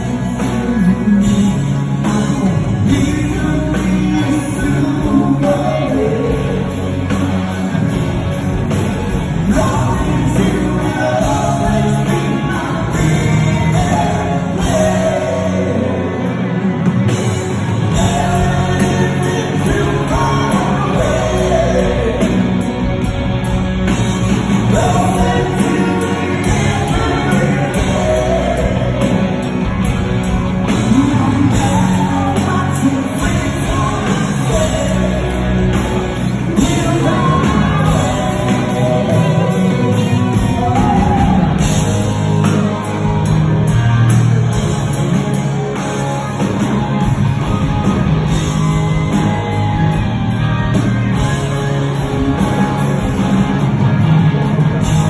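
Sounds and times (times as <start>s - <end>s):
male lead vocal: 0.0s - 8.1s, 9.0s - 23.1s, 24.2s - 43.2s
bass guitar: 0.0s - 55.0s
drums: 0.0s - 55.0s
electric guitars: 0.0s - 55.0s.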